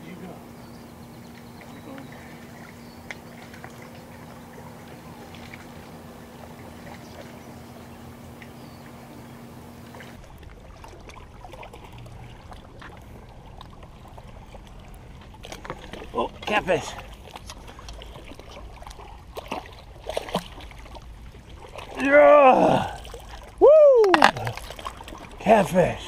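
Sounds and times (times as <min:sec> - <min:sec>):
steady low hum: 0:00.0 - 0:26.0
water lapping and trickling: 0:00.0 - 0:26.0
small clicks and splashes: 0:01.3 - 0:07.4, 0:09.9 - 0:22.1, 0:23.0 - 0:25.4.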